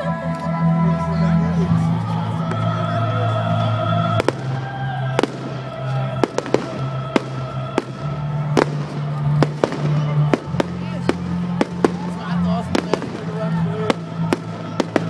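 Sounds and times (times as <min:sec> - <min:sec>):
loud music: 0:00.0 - 0:15.0
fireworks bangs: 0:04.1 - 0:15.0.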